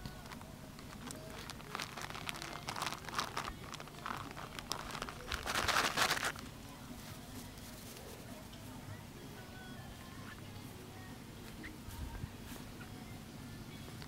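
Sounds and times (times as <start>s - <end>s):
plastic tarp crinkling under paws: 0.0s - 6.5s.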